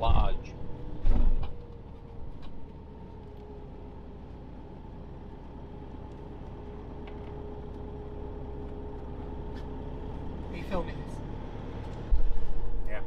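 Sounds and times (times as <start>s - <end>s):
engine and road rumble: 0.0s - 13.0s.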